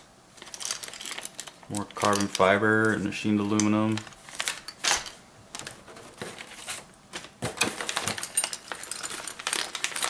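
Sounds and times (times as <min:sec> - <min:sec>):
plastic bags rustling: 0:00.3 - 0:10.0
small hard parts clicking: 0:00.4 - 0:05.7, 0:07.6 - 0:10.0.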